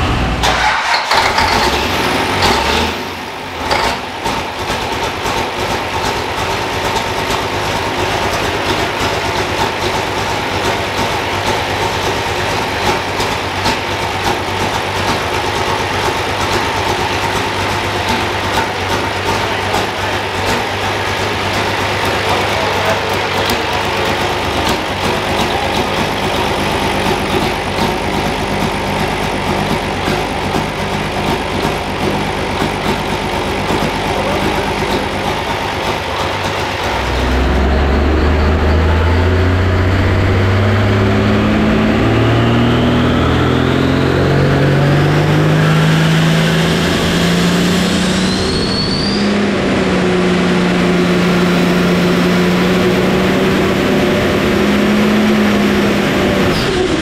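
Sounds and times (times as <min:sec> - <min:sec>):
tractor engine revving: 0:00.0 - 0:57.0
turbo whistle: 0:47.9 - 0:49.4.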